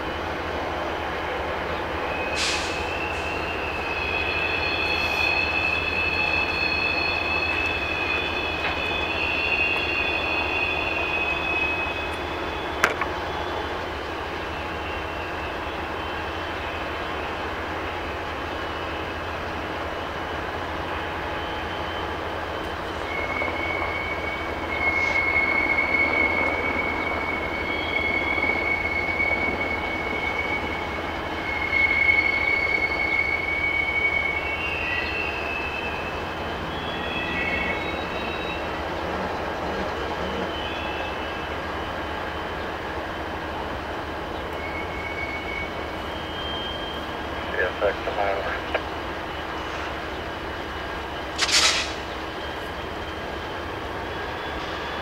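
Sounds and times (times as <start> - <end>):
freight cars rolling: 0.0 - 55.0
train wheels squealing: 0.1 - 55.0
sharp click: 51.4 - 52.1.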